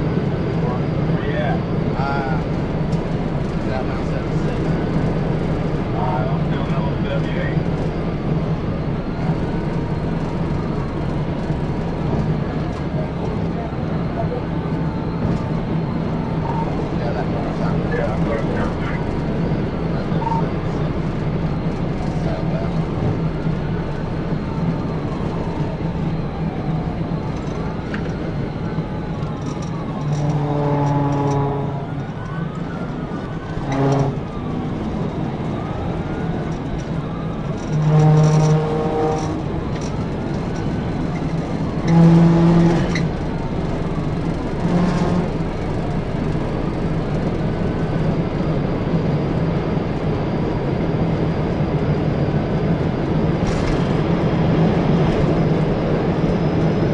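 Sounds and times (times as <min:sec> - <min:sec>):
engine and road noise: 0:00.0 - 0:56.9
police siren wailing: 0:00.0 - 0:56.9
car horn blasts: 0:30.2 - 0:31.8, 0:33.7 - 0:34.2, 0:37.7 - 0:39.4, 0:41.9 - 0:43.0, 0:44.6 - 0:45.4.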